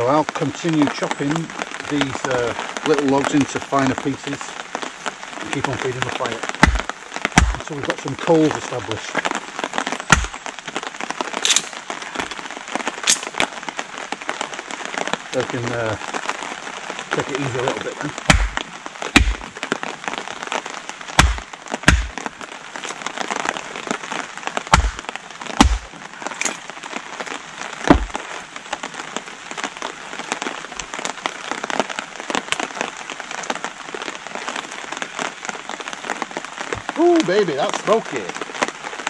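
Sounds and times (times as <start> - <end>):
heavy rain pattering: 0.0 - 39.0
axe chopping wood: 6.6 - 7.6, 10.1 - 10.4, 11.4 - 12.4, 18.3 - 19.5, 21.2 - 22.2, 24.7 - 26.6, 27.9 - 28.2.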